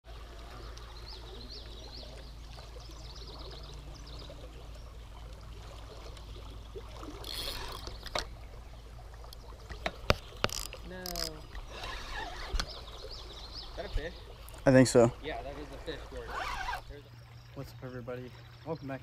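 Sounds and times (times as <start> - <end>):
river water over rocks: 0.0 - 19.0
small waterfall: 0.1 - 19.0.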